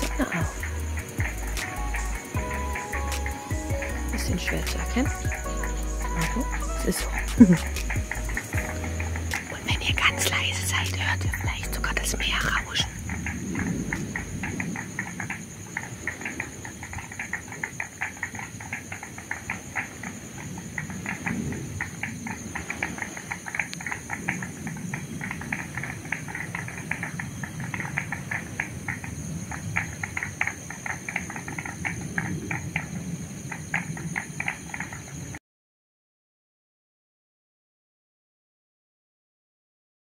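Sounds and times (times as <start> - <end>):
chorus of high chirps: 0.0 - 14.6
low even rush: 0.0 - 15.4.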